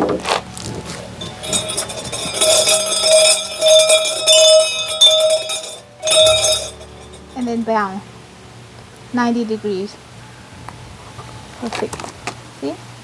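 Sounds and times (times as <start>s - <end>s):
brass rattle bell jangling: 1.2s - 7.6s.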